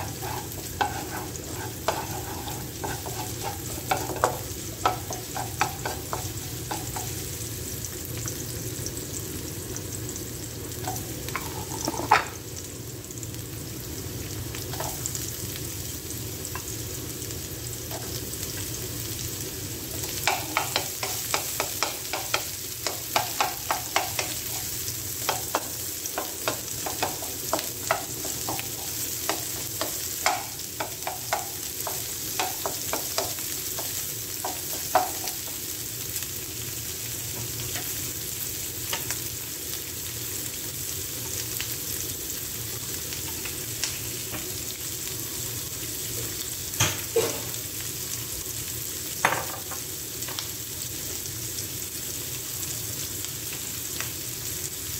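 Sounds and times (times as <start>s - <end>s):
wooden spatula knocking and scraping pan: 0.0s - 7.2s, 10.9s - 12.3s, 20.2s - 35.6s
onion and garlic sizzling in a wok: 0.0s - 54.9s.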